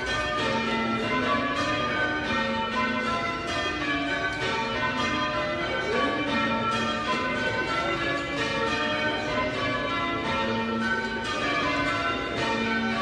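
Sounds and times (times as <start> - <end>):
church bells ringing changes: 0.0 - 13.0.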